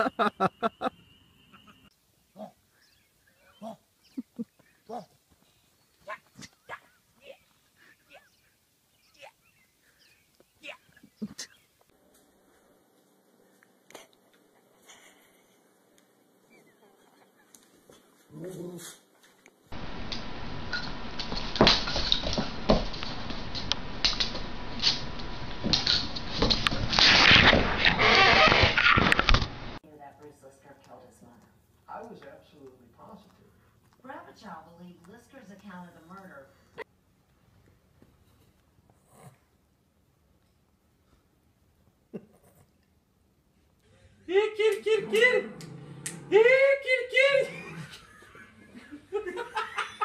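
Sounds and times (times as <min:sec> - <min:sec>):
steady hiss: 0:19.8 - 0:29.8.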